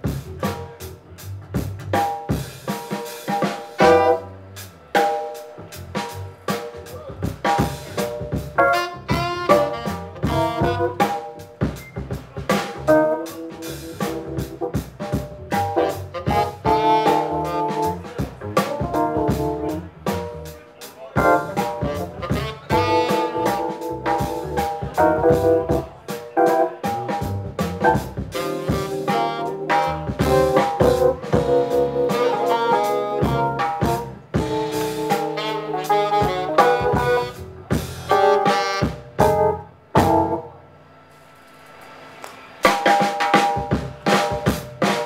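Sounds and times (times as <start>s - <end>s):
upright bass: 0.0s - 2.6s, 3.8s - 40.5s
drum kit with rimshots: 0.0s - 45.0s
keyboard: 1.8s - 40.7s
saxophone melody: 3.8s - 4.4s, 8.6s - 11.2s, 15.7s - 18.1s, 21.2s - 25.8s, 28.3s - 40.4s.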